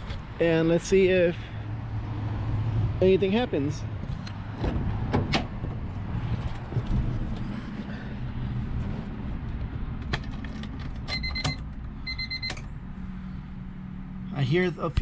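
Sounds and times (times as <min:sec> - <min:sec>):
dashboard warning chime beeping: 0:11.1 - 0:14.3.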